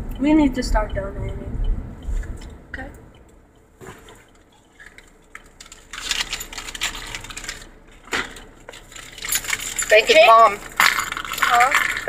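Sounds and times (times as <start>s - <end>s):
metallic clinks and jingles: 8.3s - 12.0s.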